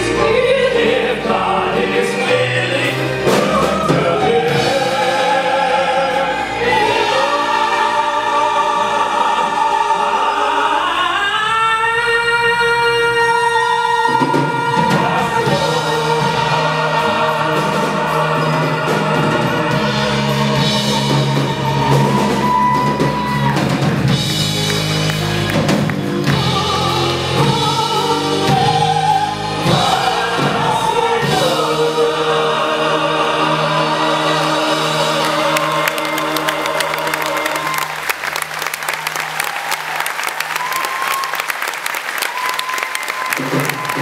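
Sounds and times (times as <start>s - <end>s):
operatic pop singing with choir: 0.0s - 24.4s, 25.1s - 38.3s
band with drums guitar keyboards: 14.2s - 32.4s.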